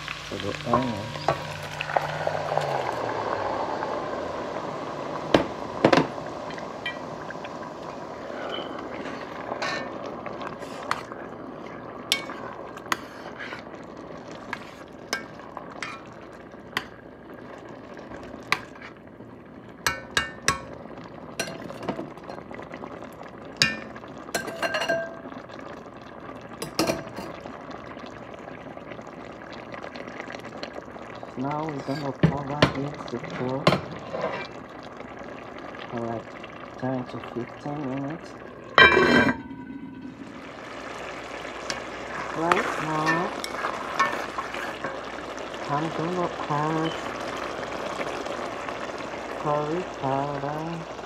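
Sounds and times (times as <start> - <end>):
food sizzling in oil: 0.0 - 51.0
metal spoon clinking on pot: 21.4 - 22.4, 24.4 - 25.2.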